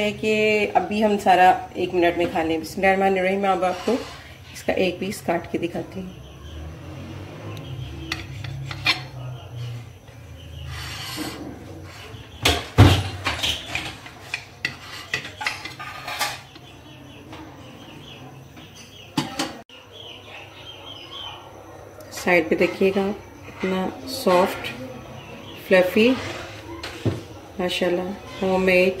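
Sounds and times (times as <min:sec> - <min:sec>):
knife scraping ceramic plate: 0:03.5 - 0:04.6, 0:08.0 - 0:09.2, 0:10.6 - 0:12.3, 0:13.4 - 0:16.7, 0:26.0 - 0:27.2.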